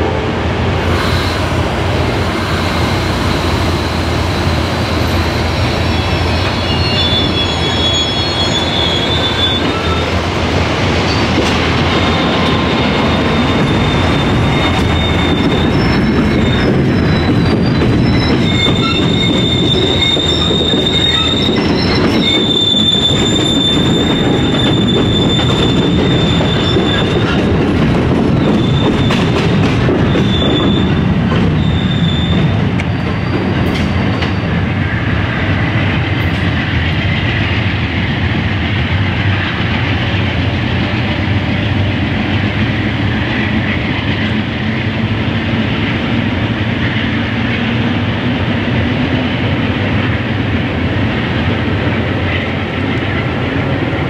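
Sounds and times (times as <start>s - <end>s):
train wheels rumbling on rail: 0.0s - 54.0s
high wheel squeal: 0.9s - 10.2s, 11.1s - 27.5s, 28.3s - 34.7s.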